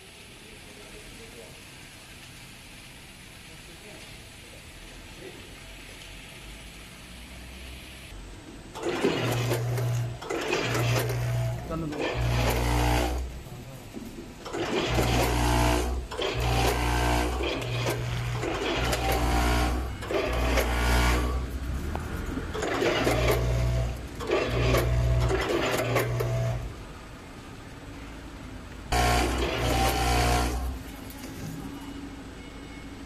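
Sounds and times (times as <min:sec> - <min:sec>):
motors humming and whining: 0:07.3 - 0:13.5, 0:14.4 - 0:26.8, 0:28.9 - 0:33.0.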